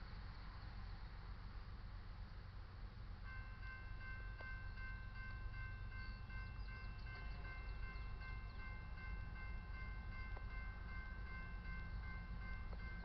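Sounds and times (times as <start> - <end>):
crossing warning bell ringing: 3.2 - 13.0.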